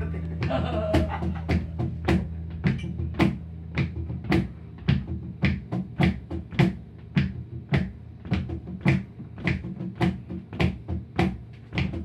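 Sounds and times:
knocking percussion beat: 0.0 - 12.0.

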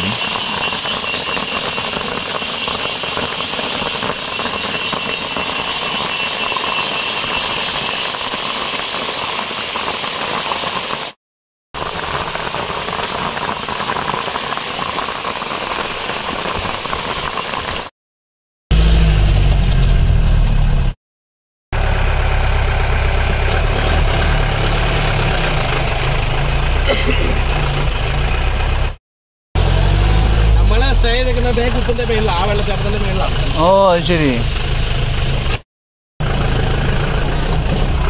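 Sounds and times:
vehicle engine running: 0.0 - 8.2, 21.8 - 29.0, 29.6 - 35.6, 36.2 - 38.0
rattling and road noise: 0.0 - 9.6, 18.7 - 21.0, 21.8 - 29.0, 29.6 - 35.6, 36.2 - 38.0
deep engine drone: 18.7 - 21.0, 21.8 - 29.0, 29.6 - 35.6, 36.2 - 38.0.

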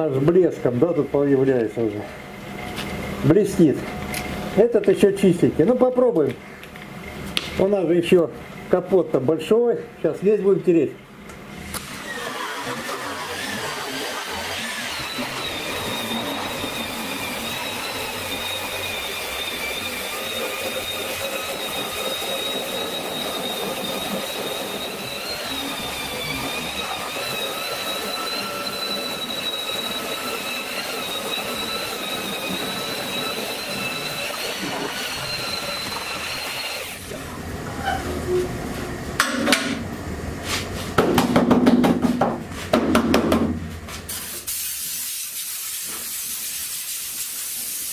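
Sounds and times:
angle grinder whining: 11.6 - 38.6
loud metallic knocks and clatters: 41.0 - 43.6.

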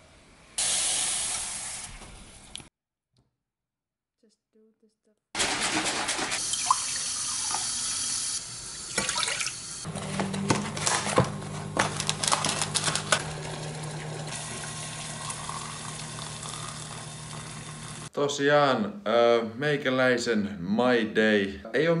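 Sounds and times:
tap running water into mug: 8.9 - 9.5.

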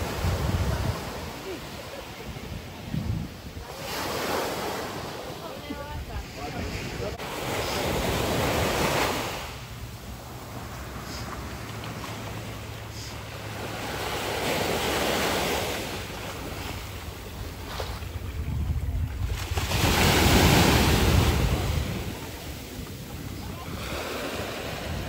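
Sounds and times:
wind on microphone: 0.0 - 4.0, 17.1 - 25.0
sea surf breaking on shore: 0.0 - 25.0.

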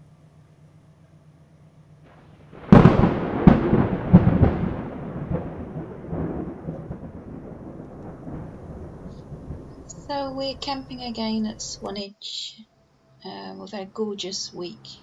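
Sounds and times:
thunder cracking and rumbling: 2.1 - 11.9.

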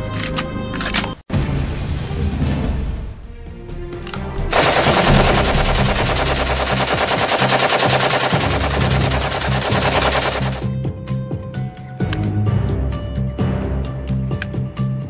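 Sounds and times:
machine-gun fire: 4.5 - 10.7.

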